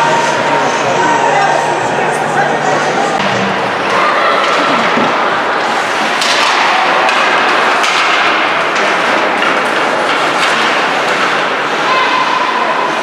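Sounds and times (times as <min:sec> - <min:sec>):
hockey sticks and puck clacking: 0:03.3 - 0:13.0
skates scraping ice: 0:03.3 - 0:13.0.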